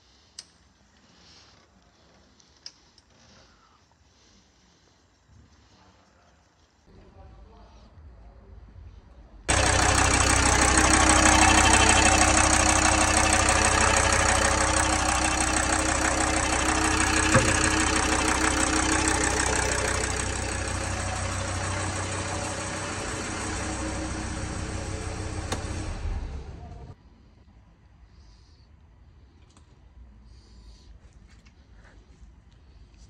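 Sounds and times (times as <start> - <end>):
diesel engine idling: 9.5 - 27.0.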